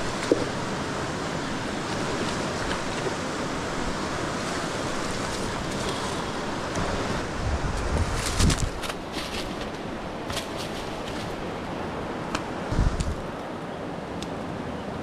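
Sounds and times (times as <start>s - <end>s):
river rapids rushing: 0.0s - 7.9s.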